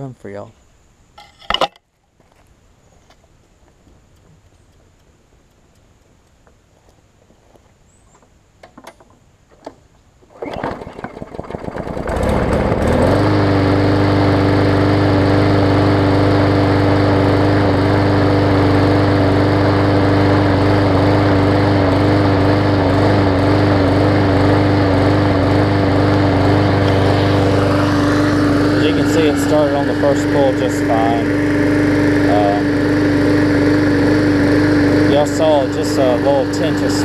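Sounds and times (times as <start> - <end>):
faint clicks: 3.0 - 9.6
lawn mower engine starting: 8.7 - 37.0.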